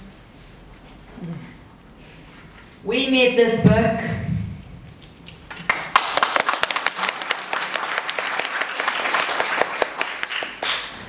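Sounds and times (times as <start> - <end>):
audience applauding: 5.5 - 11.0.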